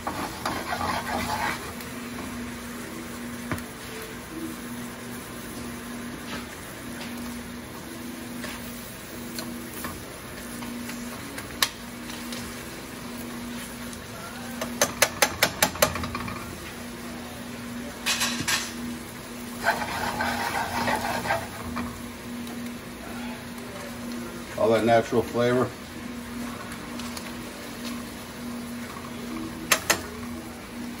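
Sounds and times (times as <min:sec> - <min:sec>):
steady low hum: 0:00.0 - 0:31.0
tongs tapping a pan: 0:14.6 - 0:16.3, 0:29.7 - 0:30.1.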